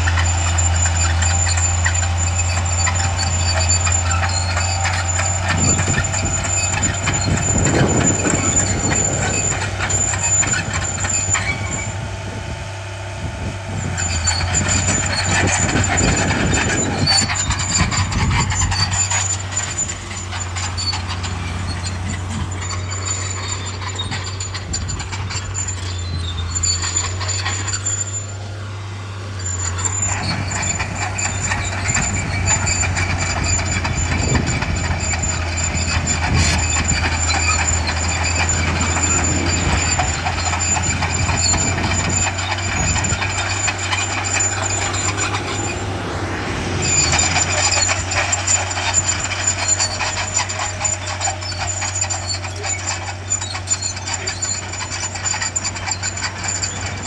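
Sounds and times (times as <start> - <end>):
diesel engine of heavy machinery: 0.0 - 57.0.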